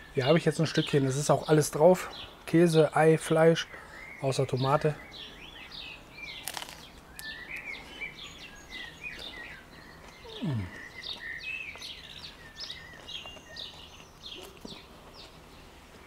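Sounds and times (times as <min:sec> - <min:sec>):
songbirds chirping: 0:00.0 - 0:16.0
crunch of crust bitten: 0:06.4 - 0:07.0
person humming mmm: 0:10.2 - 0:10.9.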